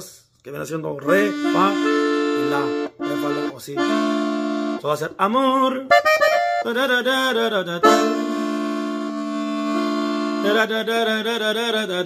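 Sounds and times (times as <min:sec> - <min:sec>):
button accordion playing: 0:01.0 - 0:12.0.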